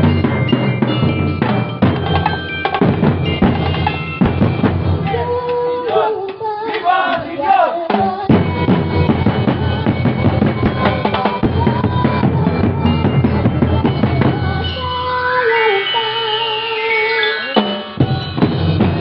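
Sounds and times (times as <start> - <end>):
drum band playing: 0.0 - 6.0, 6.9 - 14.9, 17.6 - 19.0
wavering melody line: 8.3 - 19.0.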